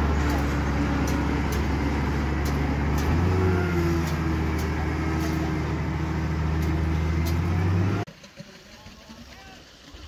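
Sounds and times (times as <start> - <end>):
diesel engine hum: 0.0 - 8.1.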